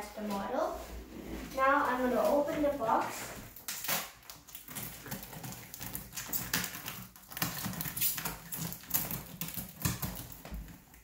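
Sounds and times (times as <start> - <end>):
scissors scraping packing tape: 3.6 - 10.9.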